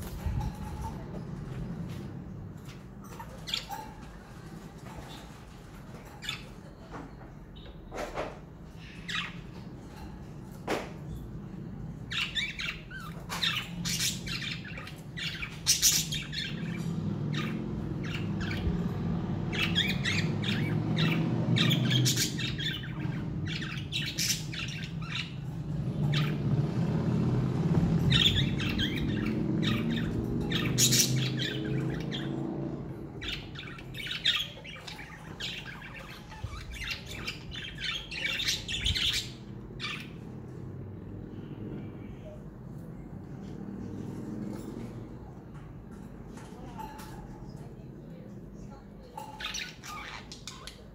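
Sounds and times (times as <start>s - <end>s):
budgerigars chirping and squawking: 0.0s - 2.1s, 2.7s - 6.7s, 7.6s - 10.1s, 12.0s - 26.9s, 27.6s - 40.4s, 49.2s - 50.9s.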